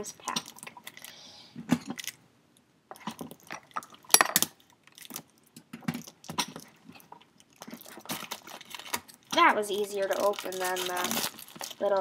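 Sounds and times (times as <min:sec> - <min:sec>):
plastic packet clicking and crinkling: 0:03.2 - 0:12.0.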